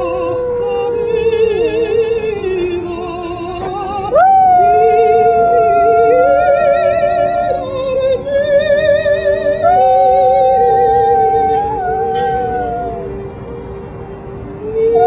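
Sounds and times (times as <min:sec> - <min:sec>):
opera music: 0:00.0 - 0:15.0
dog howling: 0:04.1 - 0:07.6, 0:09.6 - 0:13.2.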